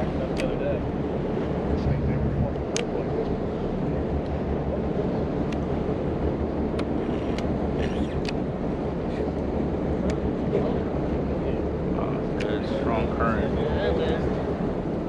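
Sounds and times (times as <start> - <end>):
boat engine droning: 0.0 - 15.0
wind noise on microphone: 0.8 - 10.4.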